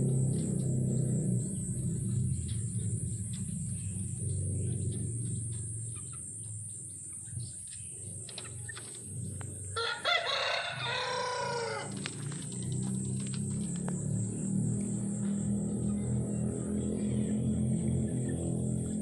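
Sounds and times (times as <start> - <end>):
low steady hum: 0.0 - 19.0
rooster crowing: 9.7 - 12.0.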